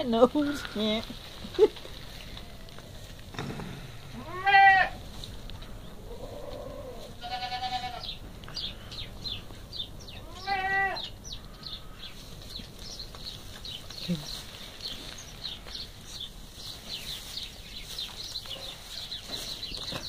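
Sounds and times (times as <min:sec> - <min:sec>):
goat kids bleating: 0:03.9 - 0:05.0, 0:06.1 - 0:08.2, 0:10.2 - 0:11.2.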